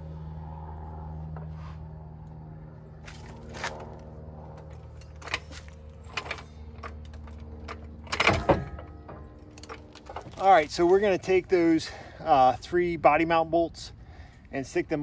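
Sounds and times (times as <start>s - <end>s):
metallic clicks and clanks: 4.6s - 11.1s.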